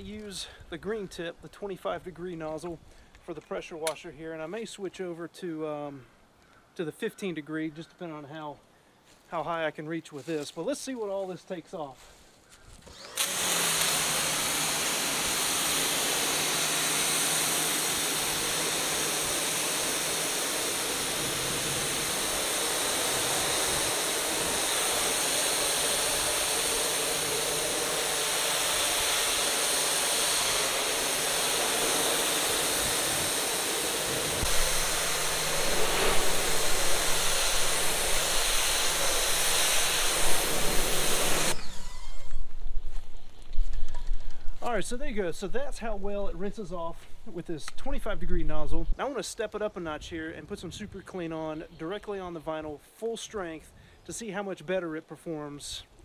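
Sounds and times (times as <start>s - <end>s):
pressure washer spraying water: 12.9s - 42.0s
low hum: 31.9s - 44.6s.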